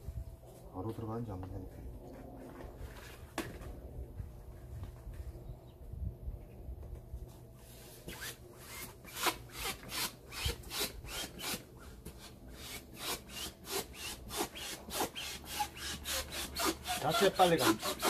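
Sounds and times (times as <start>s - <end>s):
hand air pump whooshes: 8.1s - 18.0s.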